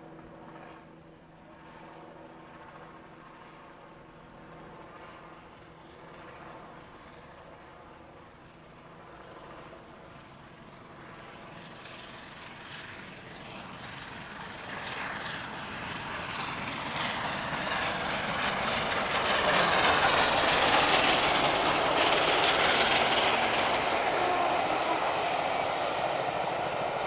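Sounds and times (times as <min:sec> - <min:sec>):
train coaches rolling past: 0:11.8 - 0:27.0
steam locomotive exhaust chuffs: 0:18.0 - 0:27.0.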